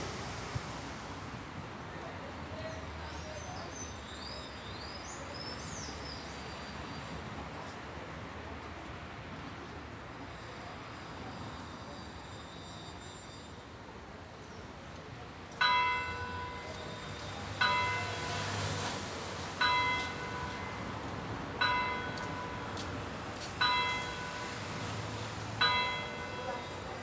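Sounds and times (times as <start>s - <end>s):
church bell tolling: 15.6s - 18.6s, 19.6s - 20.8s, 21.6s - 22.7s, 23.6s - 24.8s, 25.6s - 27.0s.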